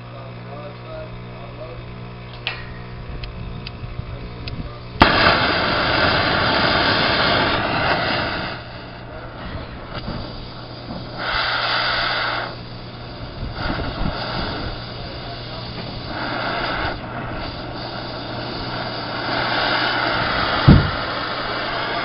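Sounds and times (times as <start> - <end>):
steady low hum: 0.0 - 22.0
pressurised gas hissing: 4.4 - 22.0.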